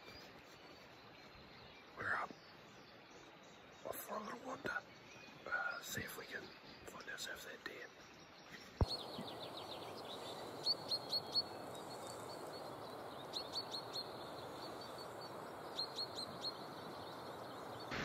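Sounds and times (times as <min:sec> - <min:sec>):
bird chirping: 0:00.0 - 0:18.0
steady rushing background: 0:08.8 - 0:18.0.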